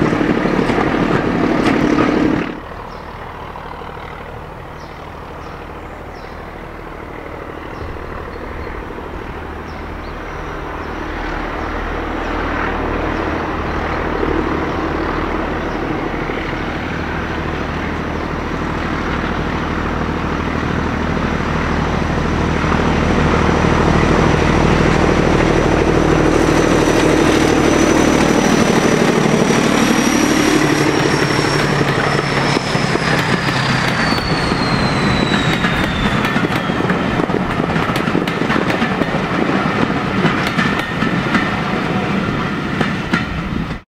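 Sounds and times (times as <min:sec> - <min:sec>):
diesel locomotive engine working hard: 0:00.0 - 0:43.8
high whine falling in pitch: 0:22.7 - 0:37.5.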